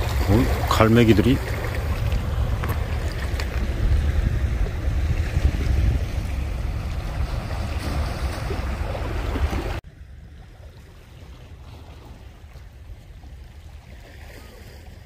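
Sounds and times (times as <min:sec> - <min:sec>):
sea rushing against rocks: 0:00.0 - 0:09.8
wind rumbling on microphone: 0:00.0 - 0:15.0.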